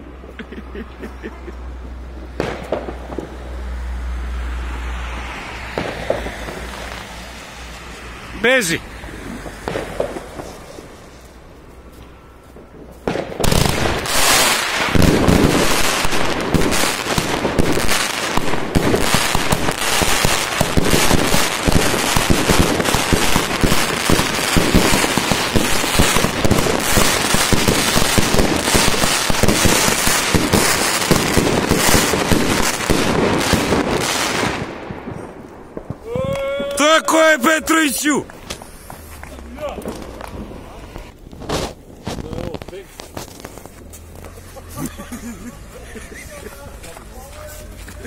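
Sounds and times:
fireworks barrage: 1.1s - 3.6s, 5.0s - 11.3s, 12.5s - 47.8s.

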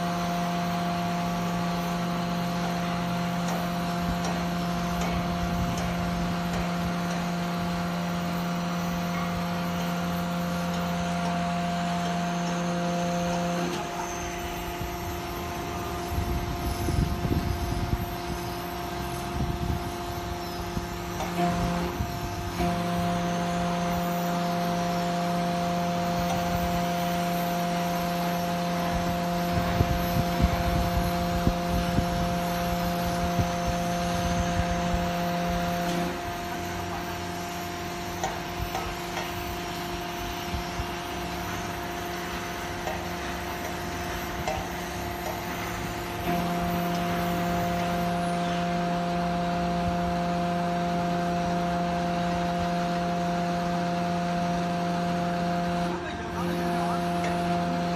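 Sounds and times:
hydraulic power unit humming: 0.0s - 57.9s.

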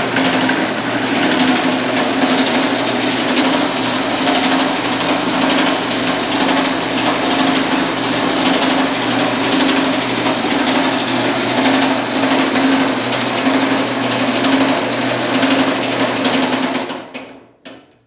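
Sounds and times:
power hammer hammering sheet metal: 0.0s - 17.4s
motor and belt drive hum: 0.0s - 17.8s.

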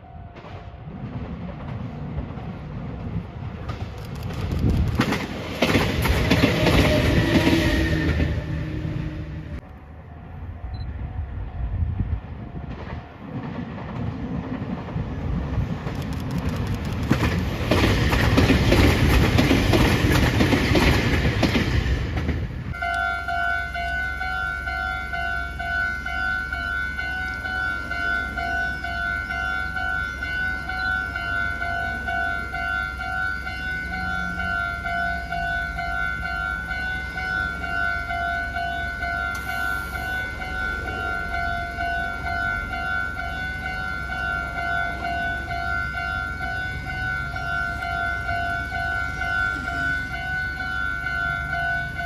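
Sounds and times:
train wheels clacking over rail joints: 0.4s - 8.4s, 12.8s - 22.6s
level-crossing warning bell: 22.7s - 52.0s.

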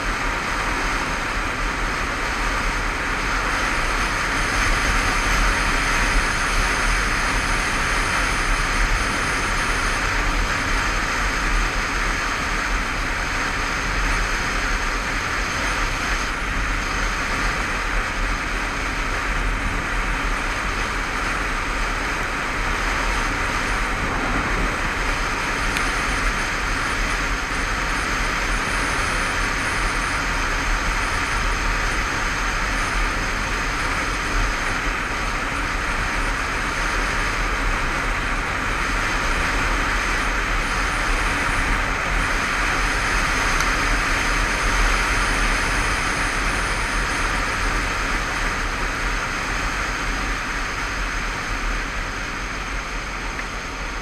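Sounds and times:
wind rush on microphone: 0.0s - 54.0s
motorcycle engine: 15.8s - 36.0s.

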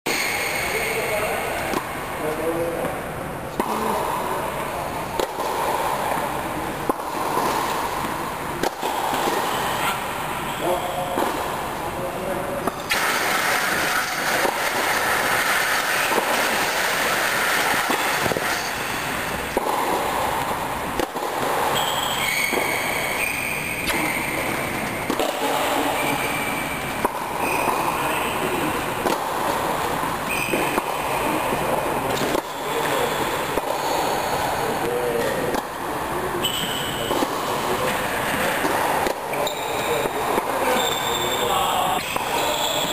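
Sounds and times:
racket hitting tennis ball: 5.0s - 10.3s, 11.0s - 11.8s, 12.6s - 35.8s, 36.9s - 40.6s
loud rushing noise: 12.8s - 21.7s
short high squeaks: 21.7s - 24.6s, 36.4s - 37.1s, 39.4s - 42.9s.

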